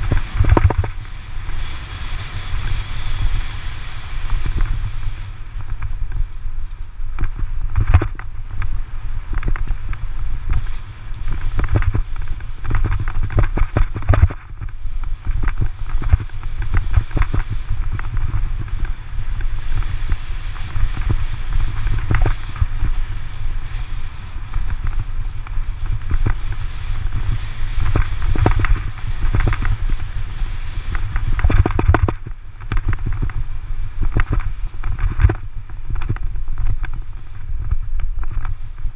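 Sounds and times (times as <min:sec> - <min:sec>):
camera rattling and knocking: 0:00.0 - 0:01.0, 0:07.2 - 0:08.7, 0:11.6 - 0:18.7, 0:31.2 - 0:33.4
wind buffeting microphone: 0:00.0 - 0:38.9.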